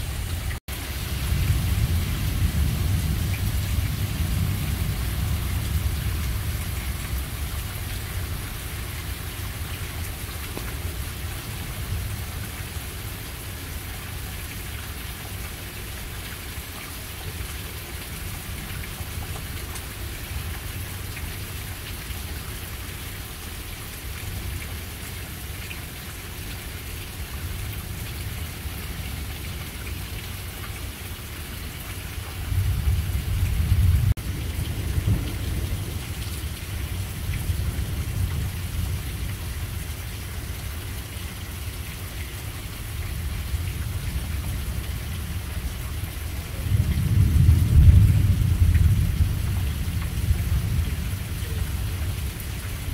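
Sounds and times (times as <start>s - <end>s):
thunder rumbling: 0.0s - 12.5s, 32.5s - 39.8s, 43.4s - 52.9s
steady rain falling: 0.0s - 52.9s.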